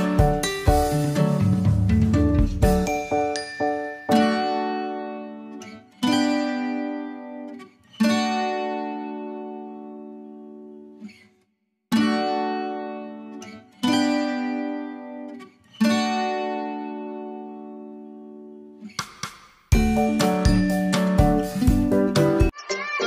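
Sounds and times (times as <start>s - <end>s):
guitar chords ringing: 0.0s - 10.9s, 12.0s - 18.8s, 19.8s - 22.5s.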